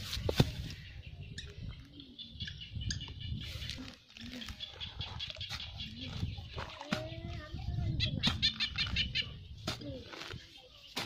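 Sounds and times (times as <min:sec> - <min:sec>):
birds chirping: 0:00.2 - 0:11.0
digging in wet soil: 0:03.4 - 0:11.0.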